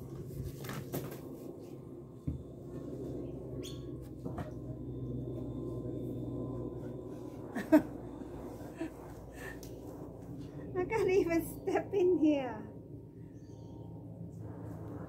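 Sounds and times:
low background hum: 0:00.0 - 0:15.0
faint bird chirp: 0:03.3 - 0:04.0, 0:13.2 - 0:13.9.

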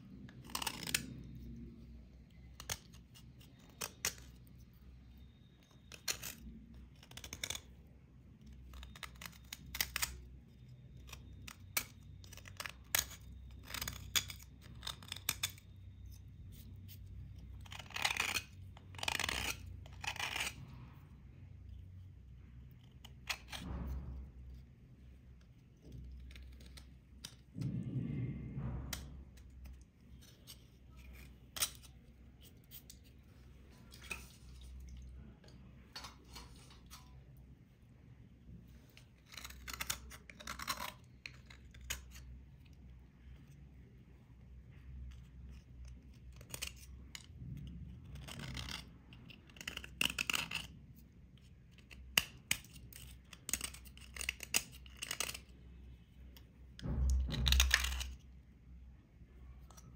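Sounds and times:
knife blades scraping crust: 0:17.6 - 0:20.7, 0:22.7 - 0:24.6, 0:39.2 - 0:42.3, 0:51.7 - 0:55.5.

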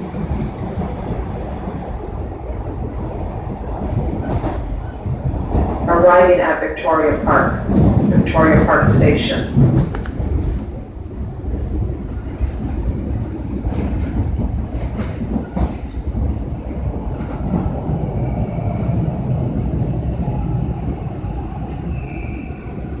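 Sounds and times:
subway train rumbling on rails: 0:00.0 - 0:23.0
high squeal of brakes: 0:21.8 - 0:23.0.

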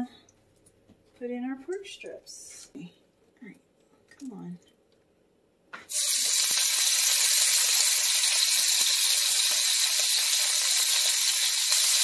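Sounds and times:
meat sizzling in hot oil: 0:05.9 - 0:12.0
oil crackles and pops: 0:05.9 - 0:12.0.

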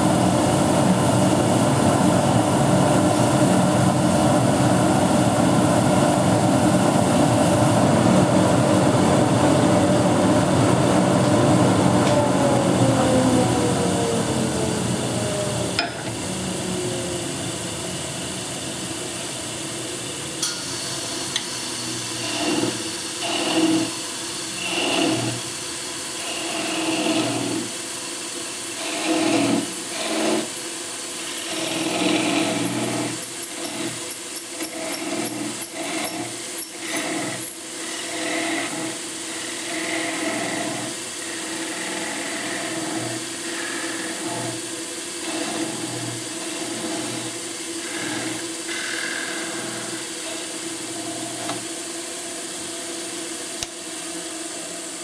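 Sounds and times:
wood lathe humming: 0:10.5 - 0:20.0, 0:21.2 - 0:25.5, 0:26.1 - 0:27.7, 0:28.6 - 0:30.6, 0:31.2 - 0:34.0, 0:34.6 - 0:52.4.

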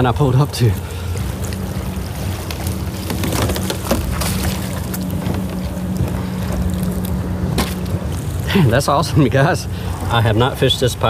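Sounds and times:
lapping water: 0:00.0 - 0:11.0
trolling motor humming: 0:00.0 - 0:11.0
wind: 0:00.0 - 0:11.0
knocks and splashes: 0:00.8 - 0:08.5.

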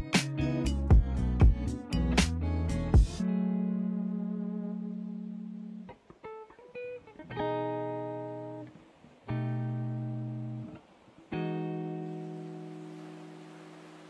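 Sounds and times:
guitar chords ringing: 0:00.0 - 0:14.0
picked guitar notes: 0:00.0 - 0:14.0.

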